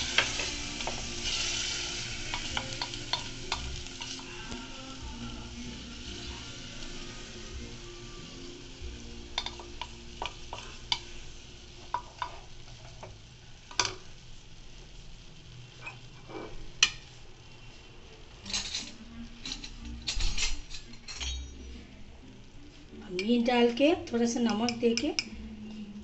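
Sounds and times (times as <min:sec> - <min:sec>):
meat sizzling in hot oil: 0:00.0 - 0:19.7.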